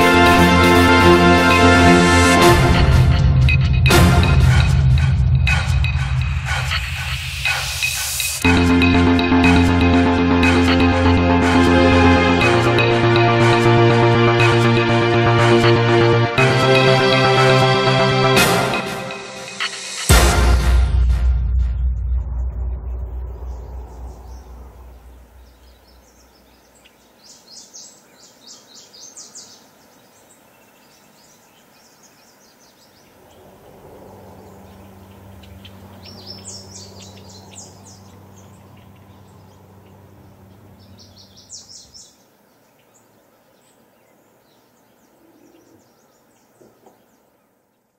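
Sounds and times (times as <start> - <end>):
music: 0.0 - 24.1
birds chirping: 21.7 - 47.9
faint outdoor background noise: 22.1 - 47.9.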